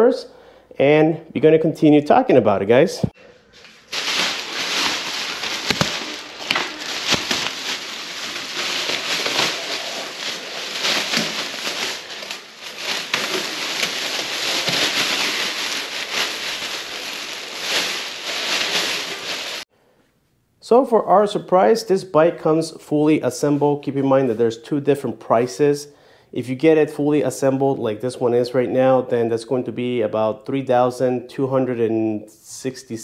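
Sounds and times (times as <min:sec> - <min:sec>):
plastic wrap crinkling: 0:03.2 - 0:19.7.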